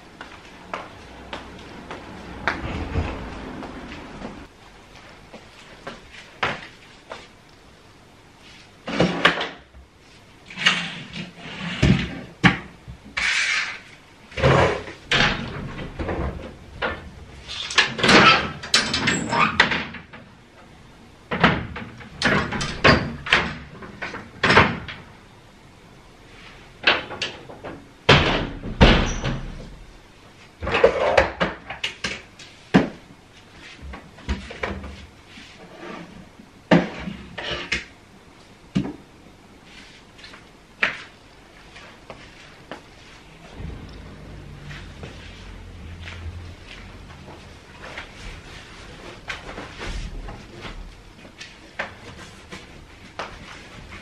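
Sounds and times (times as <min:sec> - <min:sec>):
curtain and window being worked: 0:00.4 - 0:04.5, 0:08.4 - 0:20.7, 0:39.6 - 0:54.0.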